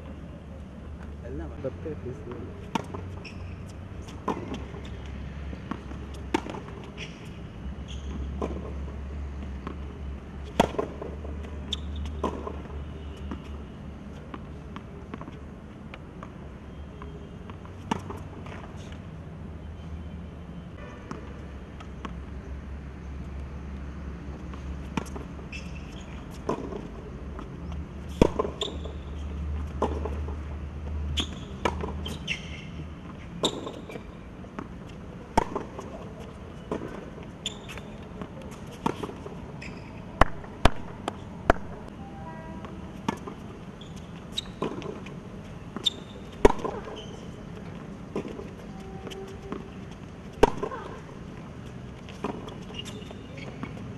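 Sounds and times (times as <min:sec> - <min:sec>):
tennis ball struck and bouncing: 0:02.3 - 0:03.4, 0:04.0 - 0:04.9, 0:05.5 - 0:07.3, 0:08.1 - 0:13.6, 0:24.3 - 0:29.1, 0:29.7 - 0:30.5, 0:31.2 - 0:32.4, 0:33.4 - 0:39.4, 0:40.2 - 0:41.9, 0:42.6 - 0:51.1.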